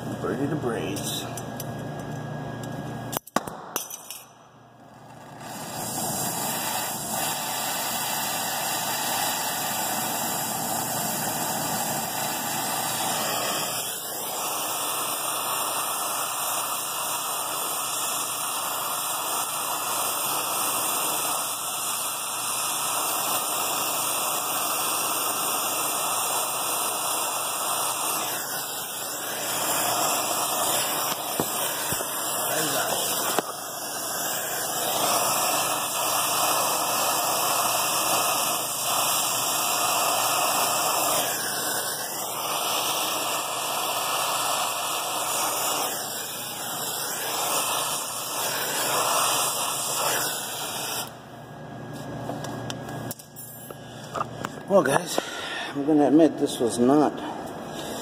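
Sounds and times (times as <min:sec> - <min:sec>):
torch flame hissing: 0:04.7 - 0:58.0.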